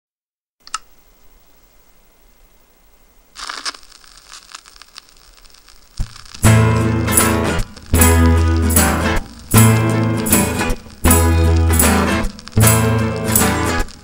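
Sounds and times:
sharp click: 0:00.6 - 0:00.9
quiet hiss: 0:00.6 - 0:14.0
handling noise rustling: 0:03.4 - 0:06.6.

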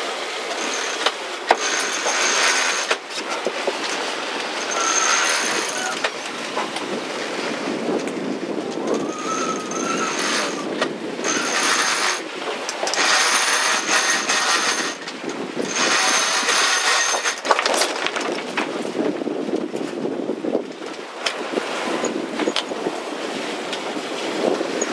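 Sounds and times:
water noise: 0:00.0 - 0:24.9
wind: 0:00.0 - 0:24.9
winch ratchet clicking: 0:00.6 - 0:03.0, 0:04.6 - 0:06.3, 0:11.2 - 0:17.5.

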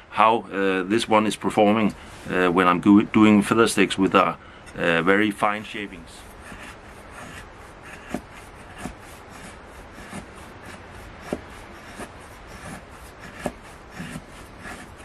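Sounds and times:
knife shaving wood: 0:05.6 - 0:15.0.

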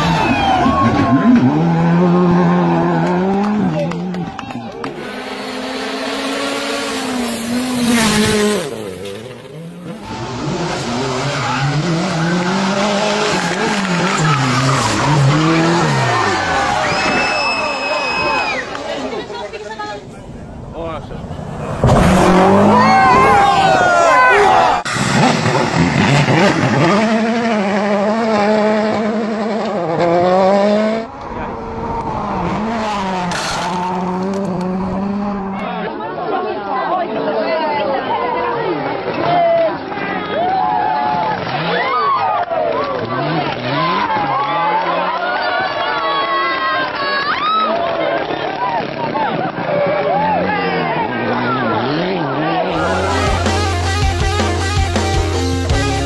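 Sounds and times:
car engine revving: 0:00.0 - 0:16.9, 0:20.0 - 0:35.8, 0:50.5 - 0:56.0
rally car passing at full throttle: 0:00.0 - 0:36.9, 0:48.0 - 0:56.0.

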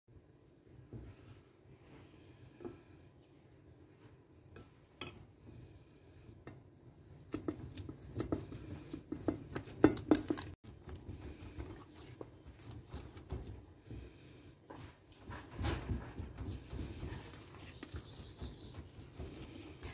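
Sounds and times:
hands kneading dough: 0:06.5 - 0:19.9.

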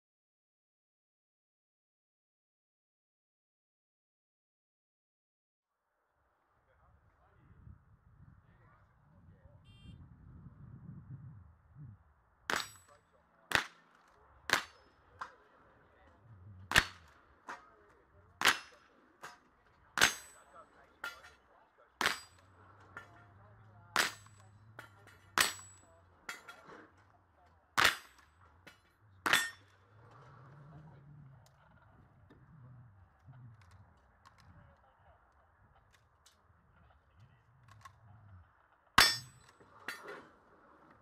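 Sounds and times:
bullets ringing on steel targets: 0:12.5 - 0:15.4, 0:16.7 - 0:17.7, 0:18.4 - 0:23.4, 0:24.0 - 0:26.8, 0:27.8 - 0:29.8, 0:39.0 - 0:40.1
rifle shots: 0:14.5 - 0:14.9, 0:16.7 - 0:17.7, 0:18.4 - 0:19.4.

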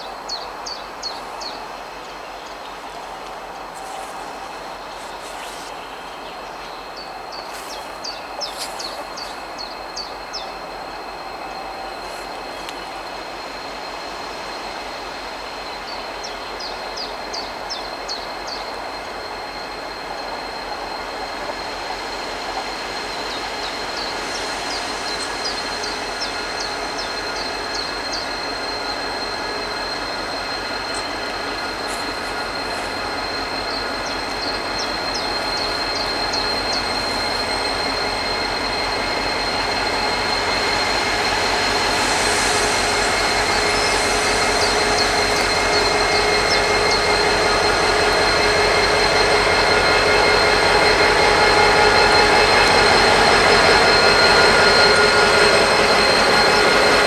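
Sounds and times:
diesel locomotive running: 0:00.0 - 0:57.0.

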